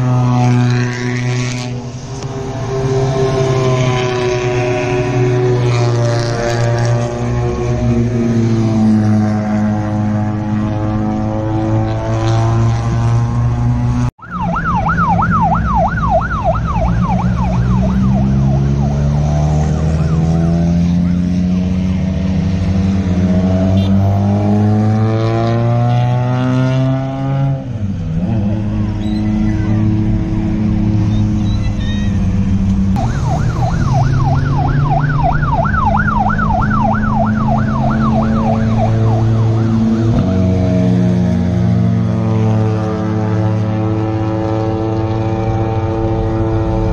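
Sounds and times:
rally car engines droning: 0.0s - 46.9s
warbling police siren: 14.2s - 21.4s, 33.0s - 41.3s.

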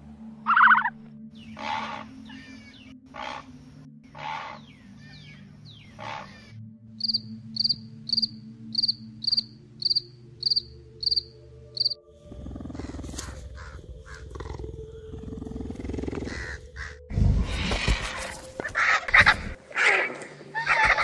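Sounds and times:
grasshopper chirping: 7.0s - 12.0s
cheetah rumbling: 11.8s - 20.0s.

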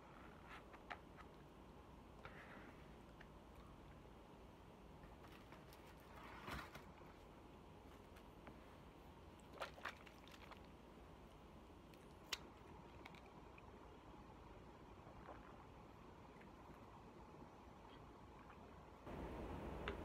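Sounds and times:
handling rustle: 5.1s - 8.9s.

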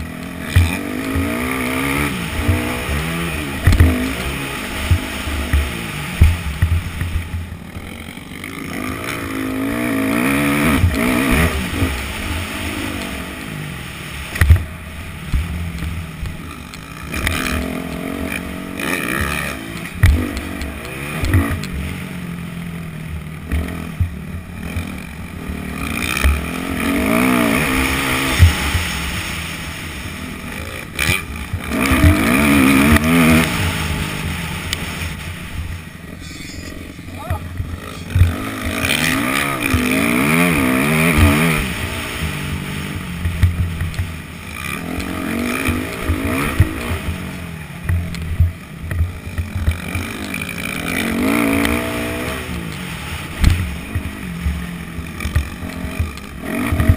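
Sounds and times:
dirt bike engine revving: 0.0s - 56.9s.

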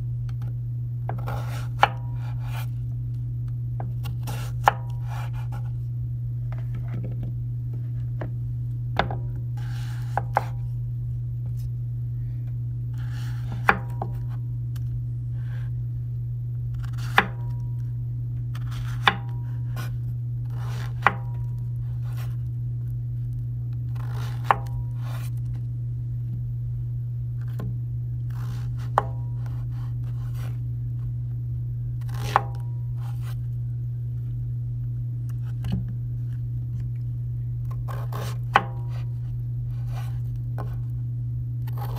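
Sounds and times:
steady low hum: 0.0s - 41.9s
knife chopping on wooden board: 1.1s - 2.7s, 3.8s - 5.6s, 9.0s - 10.6s, 13.3s - 14.3s, 16.8s - 17.5s, 18.6s - 19.9s, 20.6s - 21.4s, 24.0s - 25.3s, 37.9s - 39.1s.

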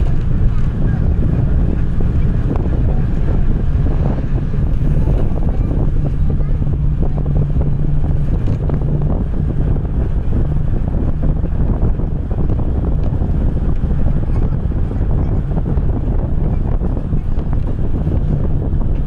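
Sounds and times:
steady low hum: 0.0s - 19.0s
vehicle engine and tyre rumble: 0.0s - 19.0s
wind buffeting microphone: 0.0s - 19.0s.

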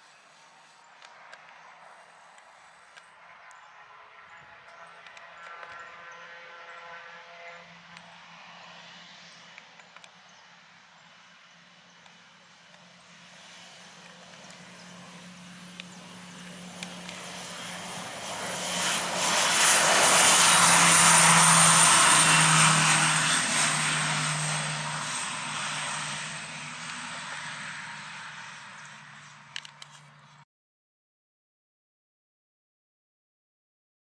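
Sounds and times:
propeller drone: 0.0s - 30.4s
high turbine whine: 9.4s - 30.2s.

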